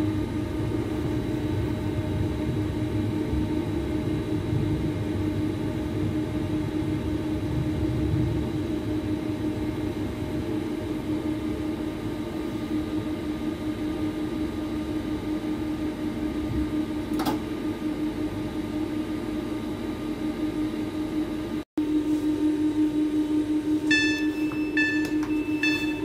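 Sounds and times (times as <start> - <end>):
train hum and rumble: 0.0 - 26.0.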